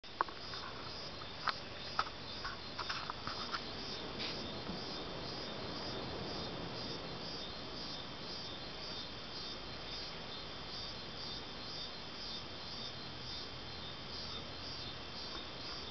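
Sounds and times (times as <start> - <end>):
crickets trilling and chirping: 0.0 - 15.9.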